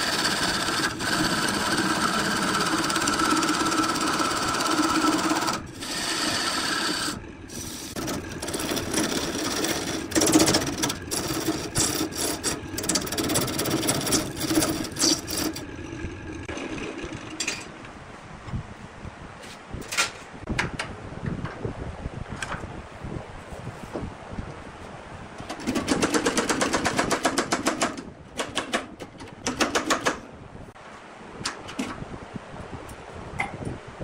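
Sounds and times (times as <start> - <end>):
turning tool scraping wood: 0.0 - 17.4
lathe hum: 0.0 - 18.0.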